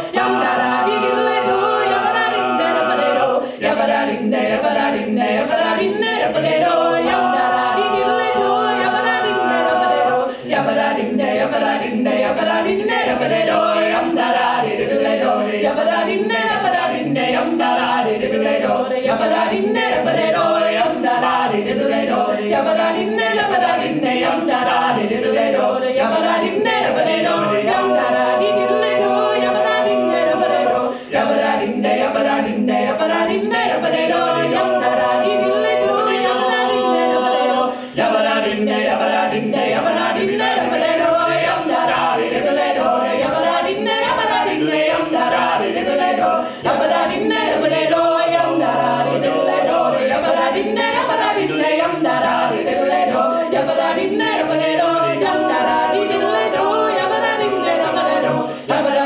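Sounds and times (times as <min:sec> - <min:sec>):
a cappella group singing in harmony: 0:00.0 - 0:59.0.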